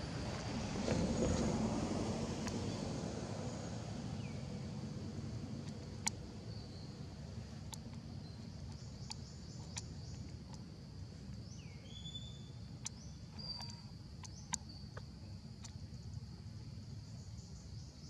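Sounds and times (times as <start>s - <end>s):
whistled bird calls: 11.6s - 12.5s.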